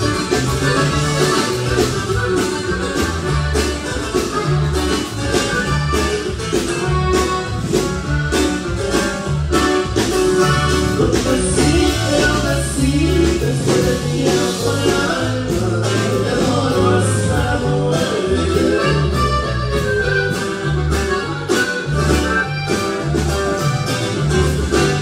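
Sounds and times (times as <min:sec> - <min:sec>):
accordion melody: 0:00.0 - 0:25.0
bass and drum beat: 0:00.0 - 0:25.0
man singing: 0:10.7 - 0:19.6.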